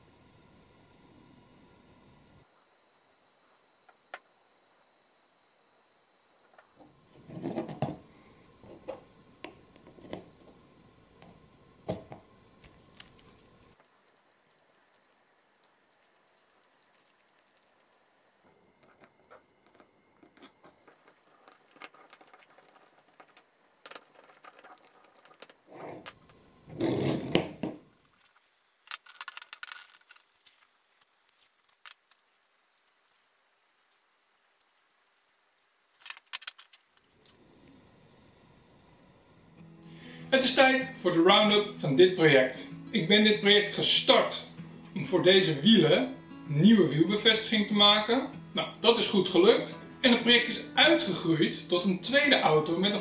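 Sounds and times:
rubbing scrape: 24.0 - 26.1.

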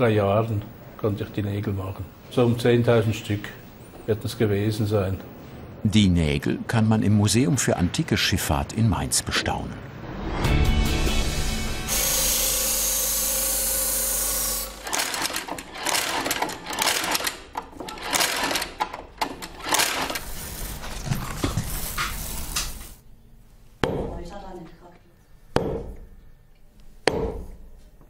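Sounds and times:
steady machine noise: 11.3 - 20.4.

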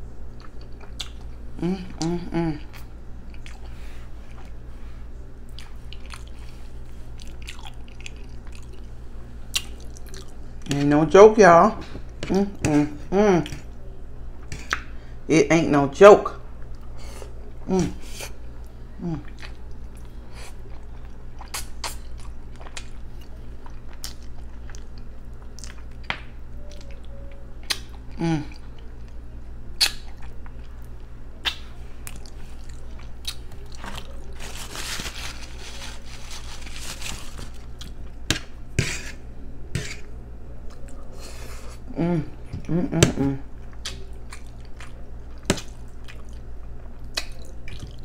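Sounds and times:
low steady hum: 0.0 - 48.0
person chewing: 0.3 - 4.6, 5.4 - 8.9, 9.5 - 10.8, 19.0 - 48.0.

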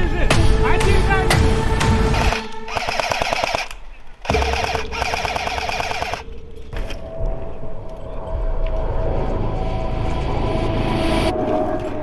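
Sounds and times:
airsoft gun full-auto bursts: 2.1 - 6.3.

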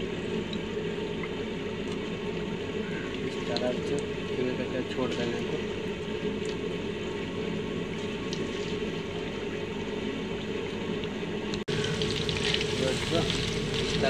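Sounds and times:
deep-frying sizzle with crackling: 11.5 - 14.0.

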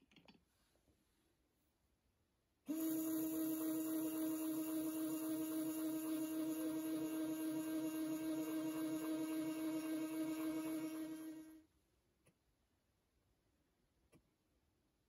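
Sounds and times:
powder dispenser motor humming: 2.7 - 11.6.

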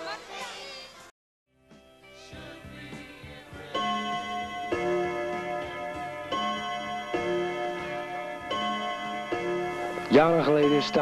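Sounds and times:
ringing chime notes: 3.8 - 11.0.

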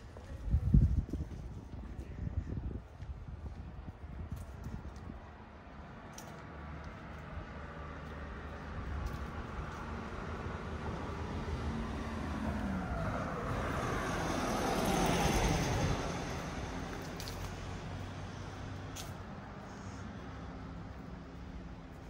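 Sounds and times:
low traffic hum: 0.0 - 22.0
motor vehicle passing by: 5.9 - 22.0.

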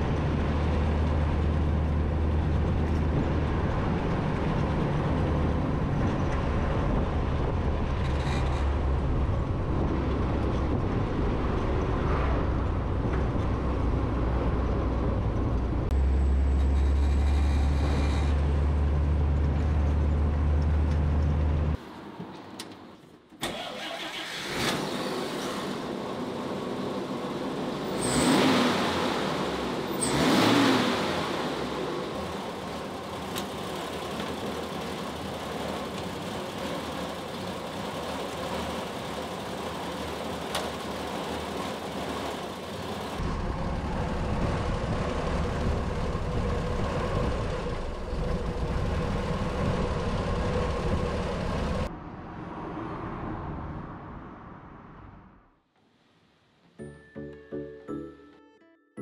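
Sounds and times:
truck engine revving and idling: 23.8 - 51.9.

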